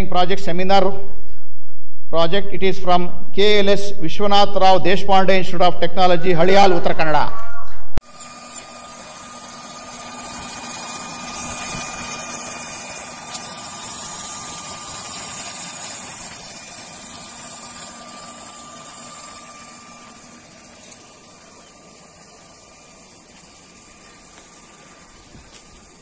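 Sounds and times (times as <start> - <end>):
small electric motor humming: 8.0 - 26.0.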